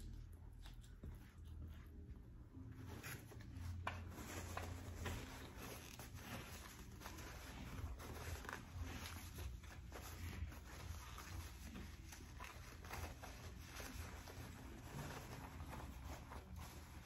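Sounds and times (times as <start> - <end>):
soft chewing: 0.0 - 17.0
paper napkin rustling: 2.5 - 17.0.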